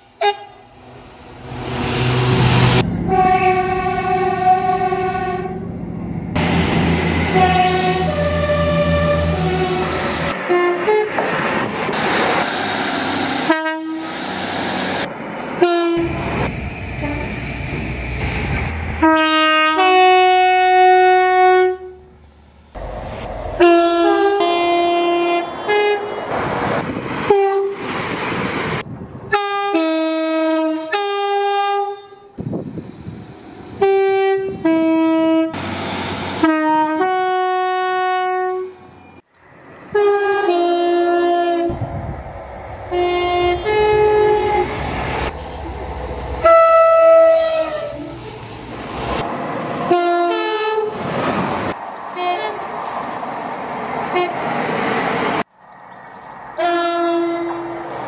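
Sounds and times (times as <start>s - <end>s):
two-tone train horn blasts: 0.0s - 0.8s, 2.0s - 5.7s, 7.1s - 11.2s, 13.4s - 14.2s, 15.6s - 16.3s, 17.0s - 17.4s, 19.0s - 22.1s, 23.6s - 26.3s, 27.3s - 27.8s, 29.3s - 32.4s, 33.8s - 35.6s, 36.3s - 39.1s, 39.9s - 41.8s, 42.9s - 45.4s, 46.4s - 48.2s, 49.9s - 51.0s, 52.2s - 52.6s, 54.1s - 54.4s, 56.6s - 58.0s
train rumbling through station: 0.0s - 58.0s.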